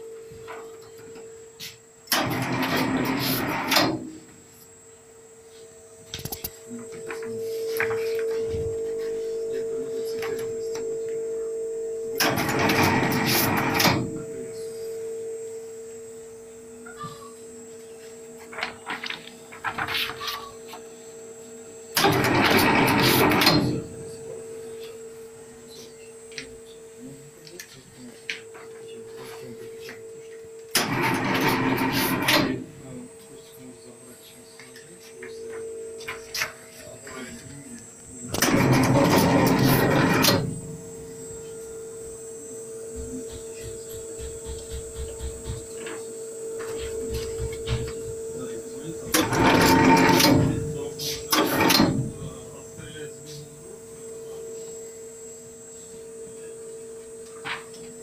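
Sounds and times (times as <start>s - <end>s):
machine motor hum: 0.0s - 58.0s
loud mechanical burst: 2.1s - 4.1s, 12.2s - 14.2s, 22.0s - 23.8s, 30.7s - 32.7s, 38.2s - 41.0s, 49.1s - 52.2s
low rhythmic mechanical thuds: 42.1s - 48.5s.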